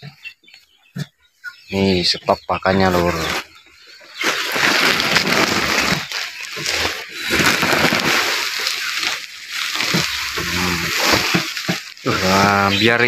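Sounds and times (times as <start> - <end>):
tarp and straw rustling: 2.6 - 13.0.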